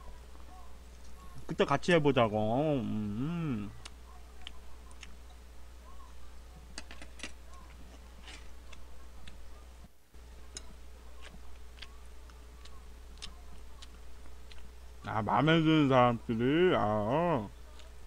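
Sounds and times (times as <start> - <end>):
steady low hum: 0.0 - 18.0
chewing and mouth smacks: 10.6 - 14.7.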